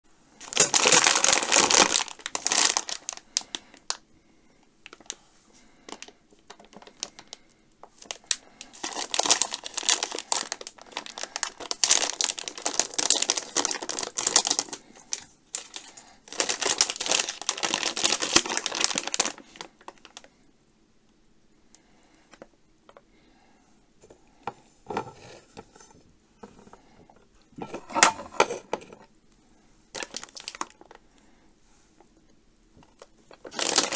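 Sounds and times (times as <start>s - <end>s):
plastic candy bag crinkling: 0.4s - 4.0s, 4.8s - 20.4s, 27.6s - 29.0s, 29.9s - 31.1s, 32.8s - 33.9s.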